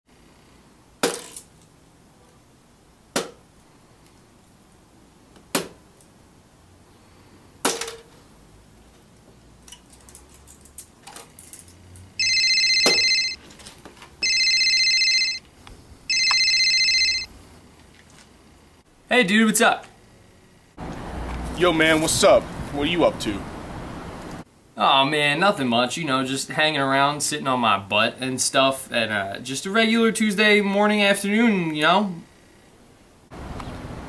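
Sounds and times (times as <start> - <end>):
mobile phone ringing: 12.2 - 13.4, 14.2 - 15.4, 16.1 - 17.3.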